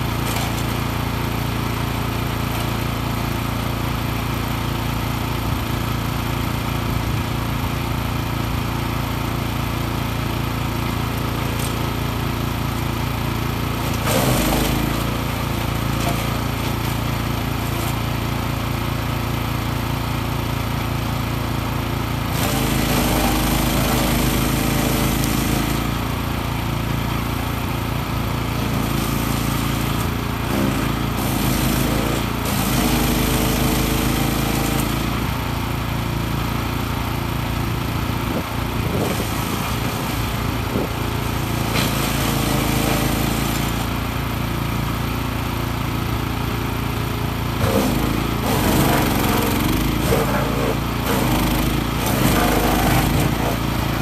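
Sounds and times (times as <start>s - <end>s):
wood going through chipper: 0.0s - 54.0s
petrol engine running: 37.7s - 54.0s.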